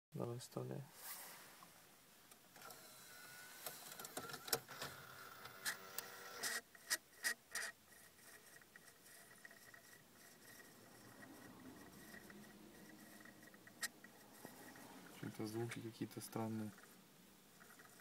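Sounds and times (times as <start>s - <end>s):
disc loading motor whir: 2.6s - 6.6s, 7.6s - 15.3s
steady high whine: 9.5s - 18.0s.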